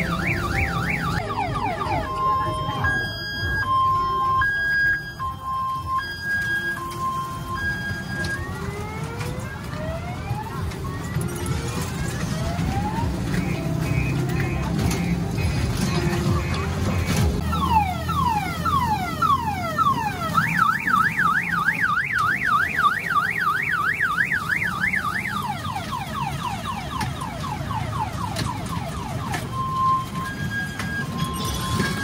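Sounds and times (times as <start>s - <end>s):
car alarm siren: 0.0s - 32.0s.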